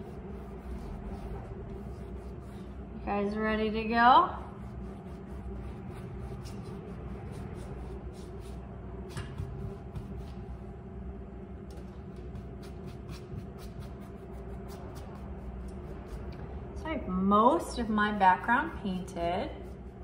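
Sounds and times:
paintbrush brushing on canvas: 0:00.0 - 0:02.8, 0:04.5 - 0:08.6
steady low hum: 0:00.0 - 0:20.0.

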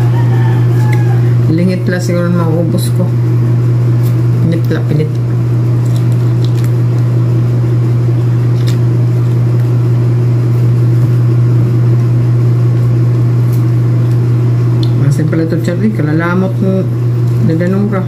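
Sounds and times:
steady low hum: 0:00.0 - 0:18.0
person chewing: 0:00.5 - 0:01.3, 0:05.2 - 0:07.2, 0:08.1 - 0:11.2.

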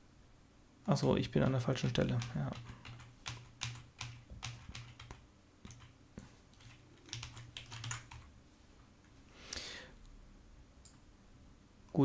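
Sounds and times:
typing on computer keyboard: 0:01.9 - 0:06.0, 0:06.6 - 0:08.3.

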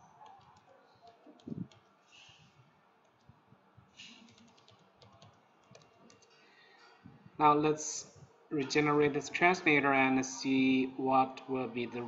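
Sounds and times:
keyboard typing clicks: 0:00.1 - 0:02.0, 0:04.0 - 0:06.3.

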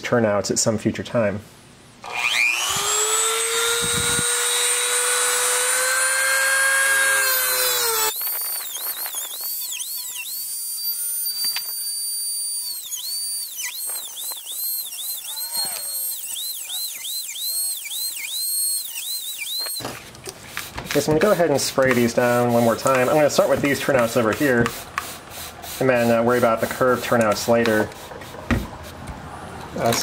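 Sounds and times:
rotary tool cutting metal rail: 0:02.0 - 0:19.9, 0:21.9 - 0:24.5.

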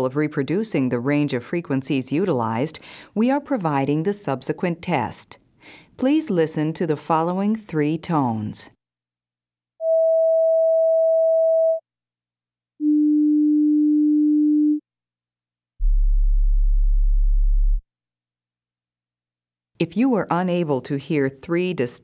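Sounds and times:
sine-wave test tones: 0:09.8 - 0:11.8, 0:12.8 - 0:14.8, 0:15.8 - 0:17.8.

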